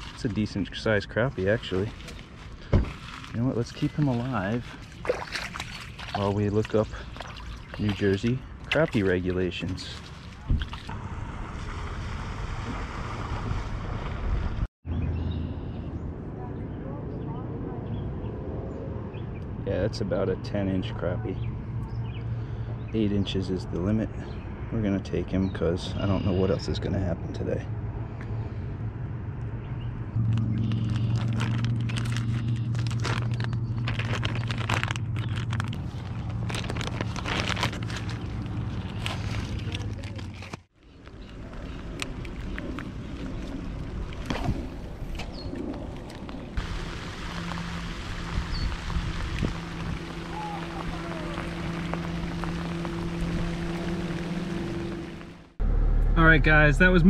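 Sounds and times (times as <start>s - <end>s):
low motor hum: 27.2s - 57.0s
plastic bag crinkling: 30.2s - 40.7s
wind buffeting microphone: 41.1s - 55.4s.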